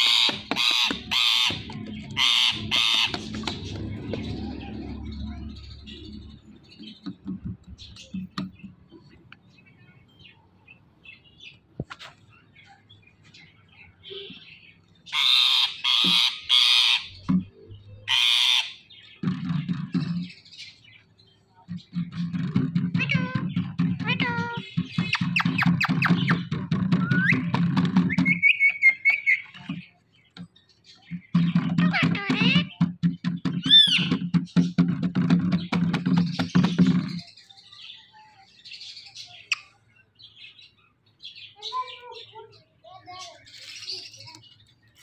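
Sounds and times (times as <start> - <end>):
parakeet calling: 0.0 - 6.8, 14.1 - 17.2, 18.0 - 19.2, 31.4 - 34.3
parakeet chirping: 0.0 - 7.0.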